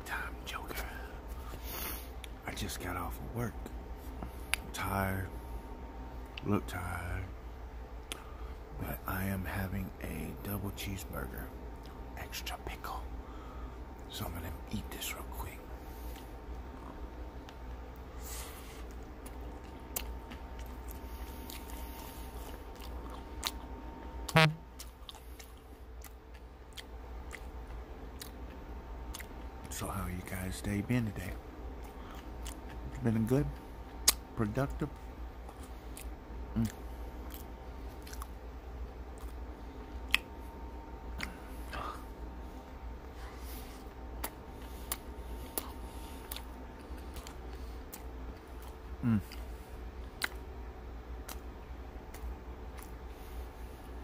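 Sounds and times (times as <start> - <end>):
steady low hum: 0.0 - 54.0
chewing with wet mouth clicks: 8.0 - 8.3, 18.8 - 23.7, 24.8 - 29.7, 31.8 - 34.3, 34.9 - 38.4, 39.1 - 40.4, 41.1 - 41.8, 43.8 - 50.6, 51.2 - 53.1
short sound dropping in pitch: 24.3 - 24.6.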